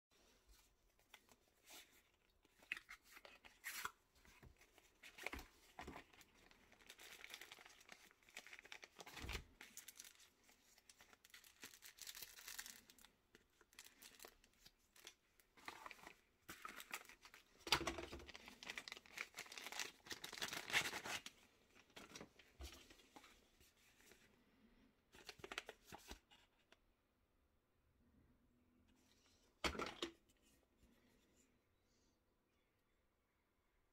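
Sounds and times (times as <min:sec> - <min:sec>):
plastic packaging crinkling: 0:04.9 - 0:22.4.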